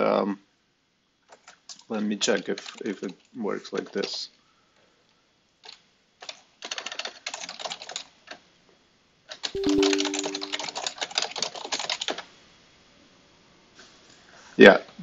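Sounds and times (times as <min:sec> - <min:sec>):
typing on computer keyboard: 0:06.6 - 0:08.0
low two-note tone: 0:09.6 - 0:10.8.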